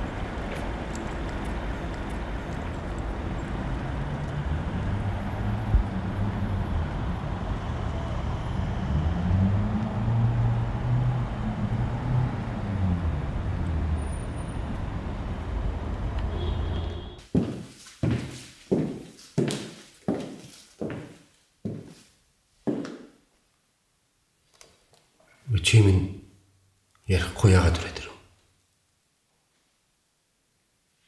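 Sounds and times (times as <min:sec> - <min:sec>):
car engine rumble: 0:00.0 - 0:17.0
traffic: 0:00.0 - 0:17.3.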